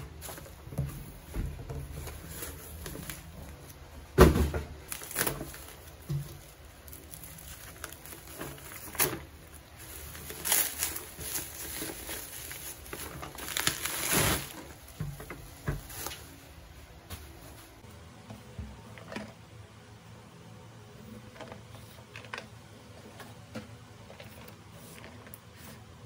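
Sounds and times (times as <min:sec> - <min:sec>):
bubble wrap crinkling and rustling: 0:00.0 - 0:17.9.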